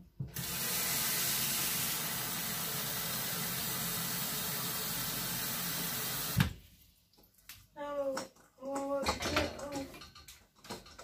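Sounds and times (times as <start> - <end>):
tap water running into a pot: 0.2 - 6.5.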